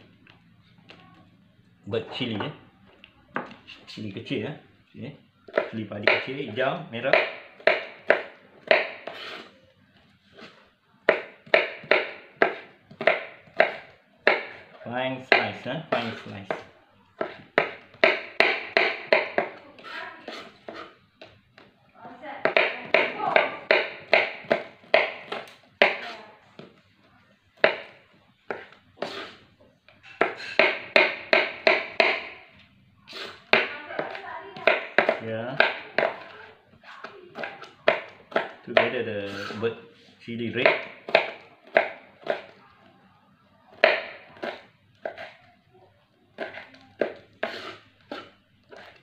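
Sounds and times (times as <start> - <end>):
knife slicing on cutting board: 47.4 - 49.0.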